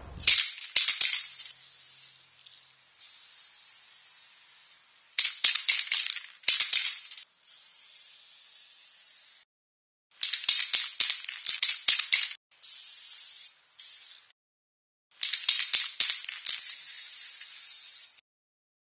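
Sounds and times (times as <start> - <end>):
rattling hissing noise: 0.0 - 0.4.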